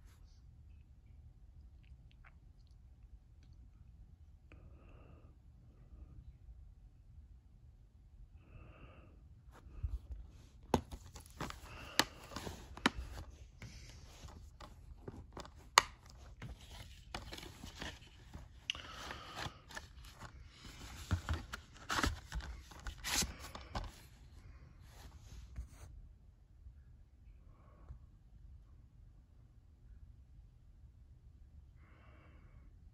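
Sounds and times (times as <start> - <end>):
cardboard scraping against plastic: 10.6 - 24.1
plastic case clicking and snapping: 10.7 - 18.0.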